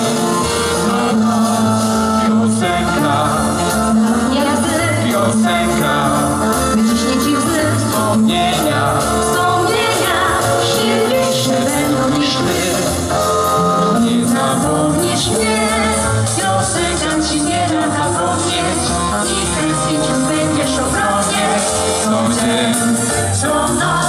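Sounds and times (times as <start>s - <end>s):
man singing: 0.0s - 9.6s, 11.0s - 16.6s, 18.0s - 24.0s
pop music with steady beat: 0.0s - 24.0s
woman singing: 4.0s - 5.8s, 6.7s - 12.5s, 14.3s - 24.0s.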